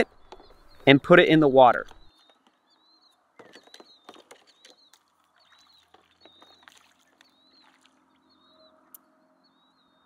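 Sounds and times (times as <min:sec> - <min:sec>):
bird chirping: 0:00.0 - 0:10.0
faint water splashing: 0:04.0 - 0:08.3.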